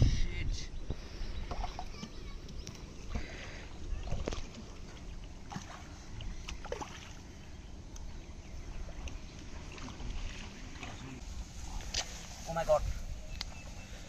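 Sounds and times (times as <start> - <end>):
wind on microphone: 0.0 - 2.0
faint clicks and splashes: 1.4 - 7.2, 8.8 - 11.2
water sloshing: 1.4 - 12.5.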